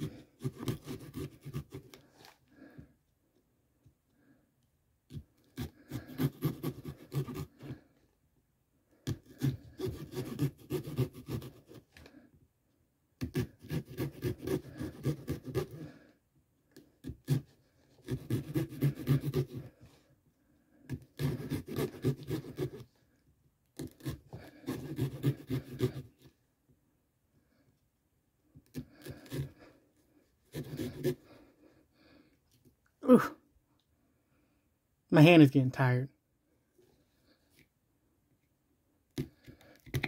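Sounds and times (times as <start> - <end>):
blade sawing through pumpkin: 0.0 - 2.4, 5.1 - 7.8, 9.1 - 12.2, 13.2 - 16.1, 17.0 - 20.0, 20.7 - 23.0, 23.8 - 26.3, 28.7 - 29.8, 30.4 - 31.6.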